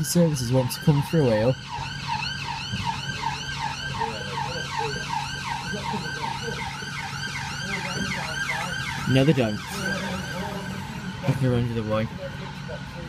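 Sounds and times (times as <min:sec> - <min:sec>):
siren yelping: 0:00.0 - 0:13.0.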